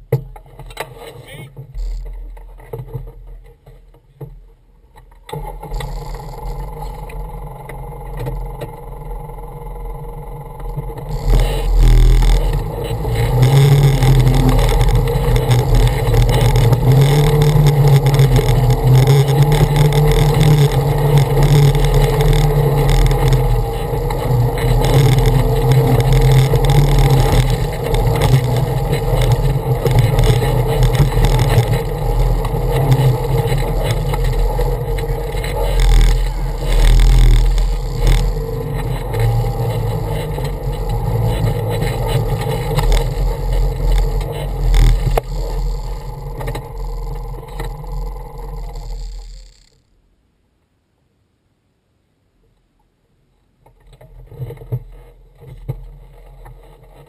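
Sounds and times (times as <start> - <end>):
off-road vehicle engine droning: 4.8 - 49.8.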